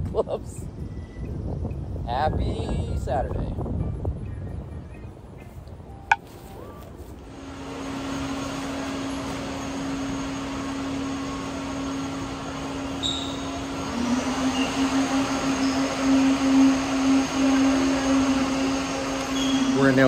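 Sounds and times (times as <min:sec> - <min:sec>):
electric motor hum with rushing air: 0:06.4 - 0:20.0.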